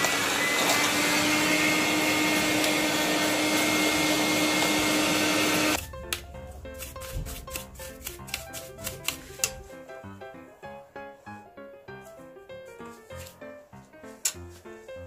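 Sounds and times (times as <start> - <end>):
electric duster blowing air: 0.0 - 5.8.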